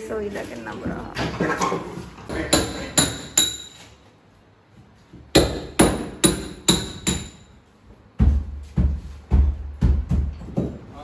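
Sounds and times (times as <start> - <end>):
hammer blows with metallic ring: 2.5 - 4.0.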